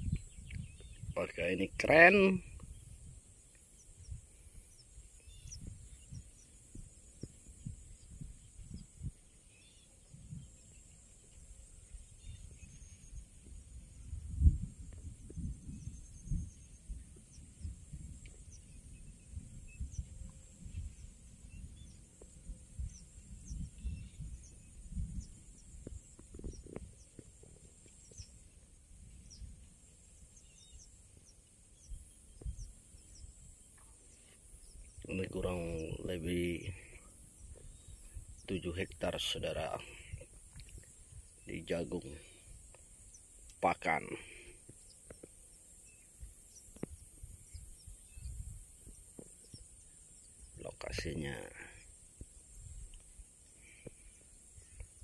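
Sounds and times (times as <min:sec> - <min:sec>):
bird chirps: 0:00.0 - 0:55.0
high-pitched hiss: 0:31.5 - 0:55.0
soft low thumps: 0:32.3 - 0:32.7.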